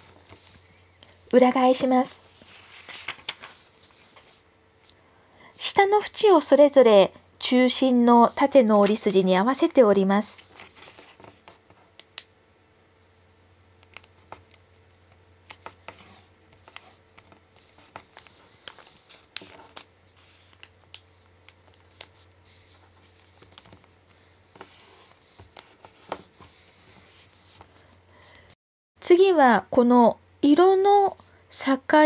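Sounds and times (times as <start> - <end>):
paper rustling: 1.8 - 4.4, 10.4 - 11.8, 15.5 - 27.8.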